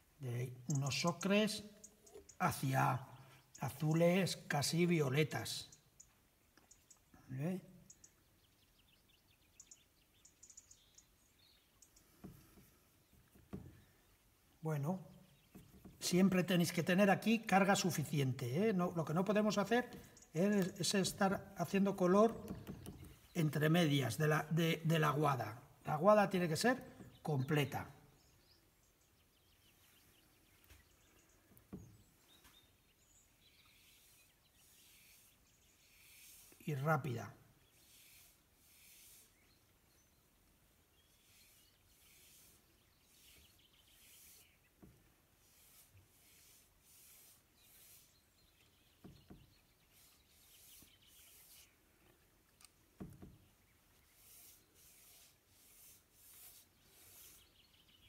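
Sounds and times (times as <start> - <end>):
brush swishing on wet card: 33.8 - 36.6, 37.8 - 39.4, 41.2 - 44.6, 45.3 - 48.3, 49.8 - 51.8, 53.9 - 57.6.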